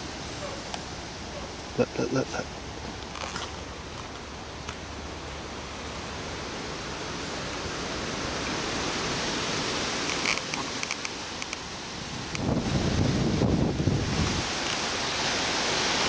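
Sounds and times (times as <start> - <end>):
wind rushing through leaves: 0.0 - 16.0
faint clicks: 10.0 - 11.7.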